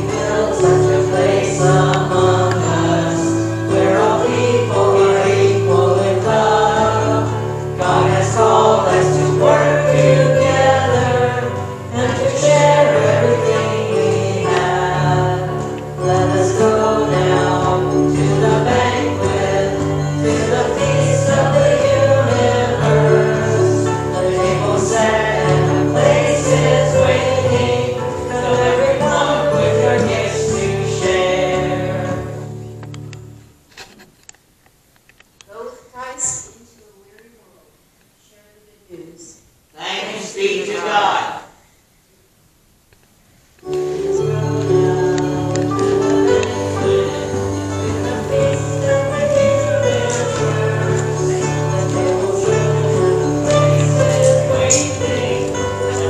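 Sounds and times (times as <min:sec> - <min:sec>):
voices singing a hymn: 0:00.0 - 0:32.9, 0:39.8 - 0:41.6, 0:43.7 - 0:56.0
acoustic stringed instrument: 0:00.0 - 0:33.1, 0:43.7 - 0:56.0.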